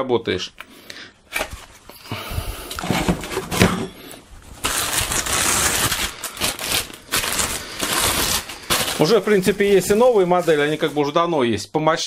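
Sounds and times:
plastic bag crinkling: 4.4s - 11.2s.

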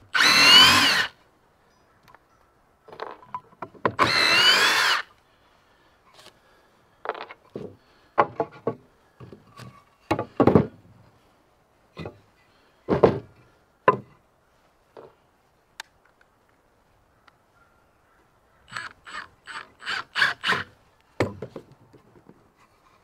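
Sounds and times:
wooden pieces knocking: 2.9s - 4.0s.

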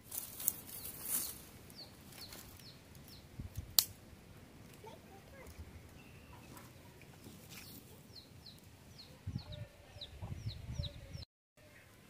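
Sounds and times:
small bird chirping: 0.6s - 3.3s, 5.9s - 11.2s.

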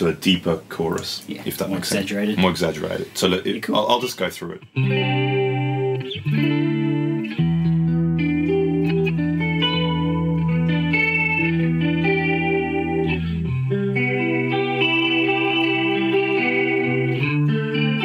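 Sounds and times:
electric guitar chords with chorus: 4.6s - 18.0s.

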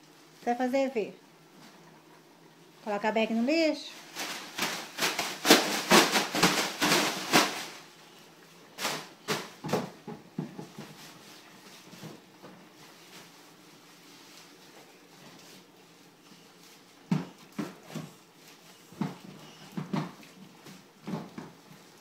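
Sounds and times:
plastic bin bag rustling: 3.5s - 8.0s.

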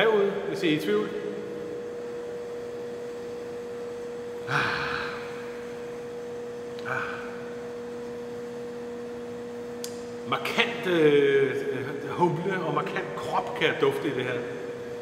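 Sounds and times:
steady hum: 0.0s - 15.0s
lower hum: 0.3s - 15.0s
man sniffing: 4.4s - 5.4s, 6.8s - 7.4s.

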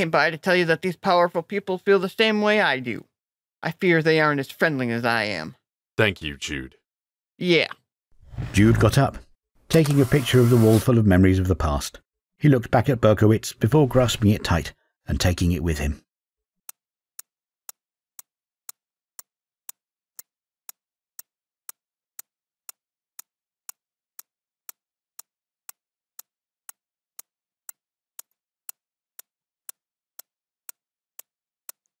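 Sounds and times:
steady sharp ticking clicks: 16.6s - 32.0s.

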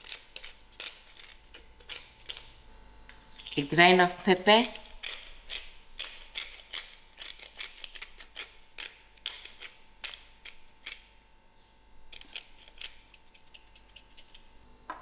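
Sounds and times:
pepper grinder clicking: 0.0s - 2.5s, 4.7s - 11.0s.

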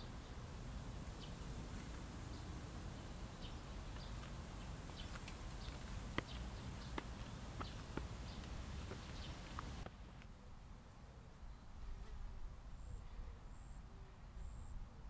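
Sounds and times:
small birds chirping: 0.0s - 9.8s.

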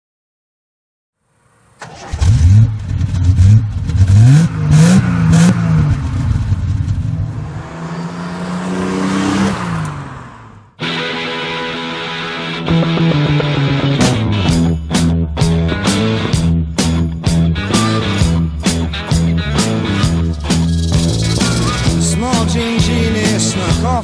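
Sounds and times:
car engine revving: 1.8s - 11.0s, 15.6s - 24.0s
rock music: 10.8s - 24.0s.

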